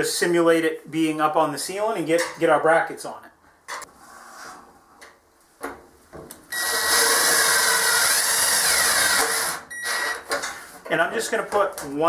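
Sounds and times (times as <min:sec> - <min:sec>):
cordless drill whining: 0:06.5 - 0:10.3.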